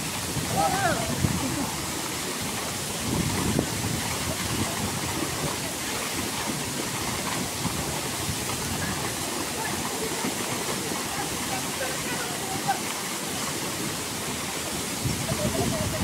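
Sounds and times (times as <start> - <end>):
waterfall rushing: 0.0 - 16.0.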